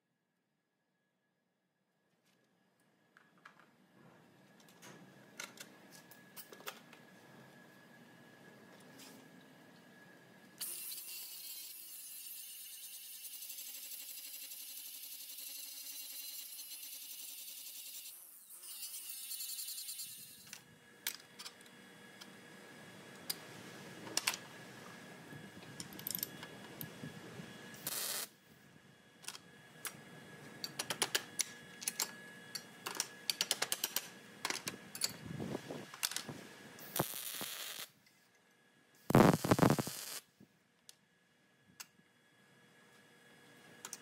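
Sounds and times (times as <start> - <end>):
welder burst: 27.8 - 28.3, 36.8 - 37.9, 39.1 - 40.2.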